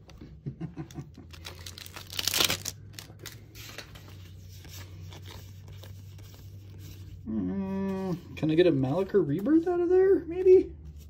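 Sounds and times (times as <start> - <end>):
cards rustling: 0.9 - 7.2, 8.0 - 11.0
foil wrapper crinkling: 1.2 - 4.0
foil wrapper ripping: 1.3 - 3.4.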